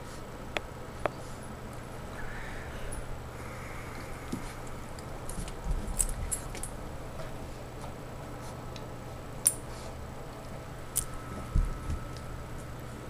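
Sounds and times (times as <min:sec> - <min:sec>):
dogs scuffling with sharp clicks: 0:04.3 - 0:12.7.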